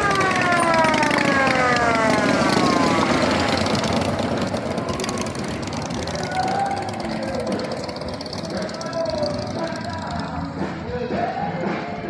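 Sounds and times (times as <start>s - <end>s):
siren winding down: 0.0s - 8.8s.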